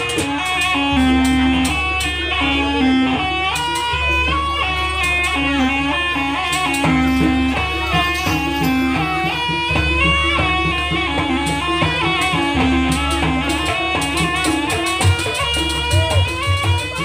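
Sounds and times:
dance music with drums: 0.0 - 17.0.

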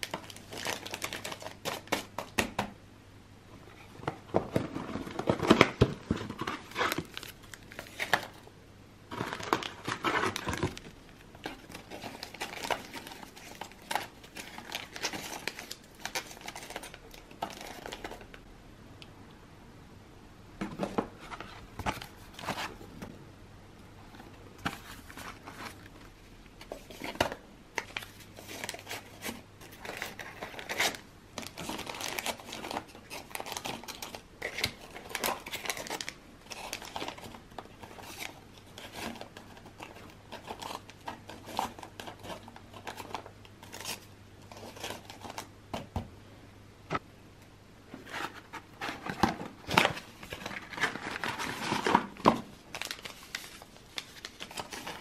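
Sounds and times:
paper sachets rustling: 0.0 - 2.3, 9.1 - 18.3, 26.6 - 45.5, 48.2 - 55.0.

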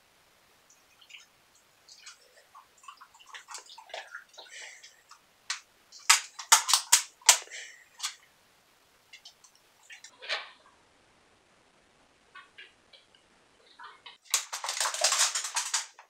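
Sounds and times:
dog eating from metal bowls: 14.2 - 16.0.

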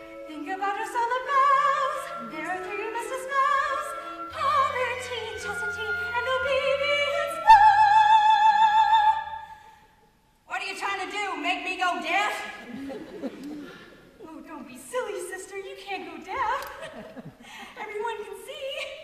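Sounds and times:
sustained musical accompaniment: 0.0 - 9.4
soprano singing operatically: 0.0 - 9.6.

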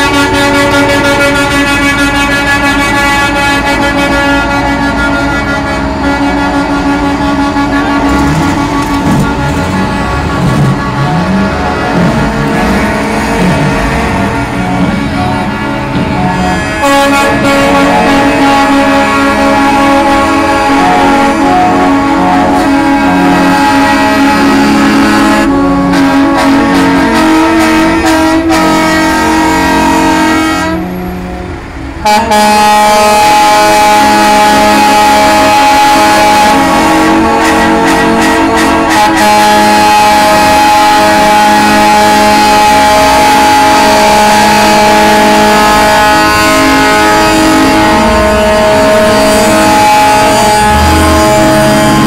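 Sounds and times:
truck air horns: 0.0 - 52.0.

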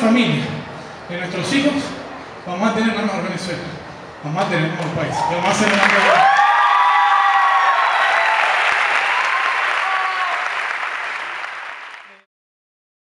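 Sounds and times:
voices cheering: 4.9 - 12.2
audience applauding: 5.4 - 12.3.

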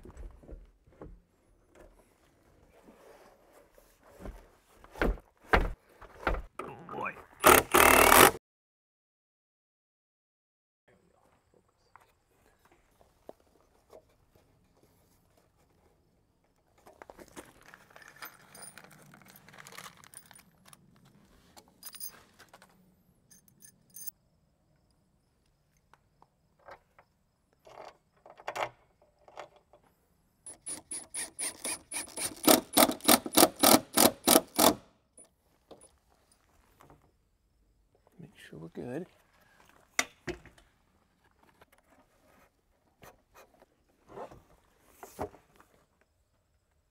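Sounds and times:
power driver driving screw: 7.4 - 8.4, 30.5 - 34.8
steel screws jangling and clinking: 17.9 - 20.4, 21.8 - 22.2, 23.3 - 24.2.

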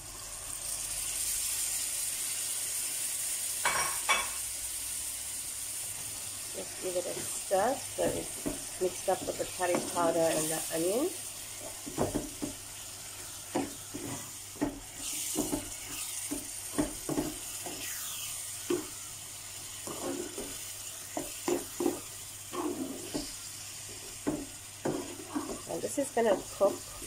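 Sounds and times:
chutney sizzling in a pan: 0.0 - 27.0
spatula scraping a pan: 12.8 - 19.0, 19.7 - 27.0.

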